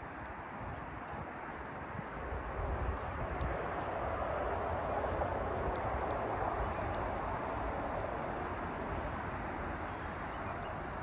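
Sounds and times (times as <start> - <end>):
birds pecking seed: 0.0 - 11.0
rushing background noise: 0.0 - 11.0
high bird chirps: 9.7 - 11.0.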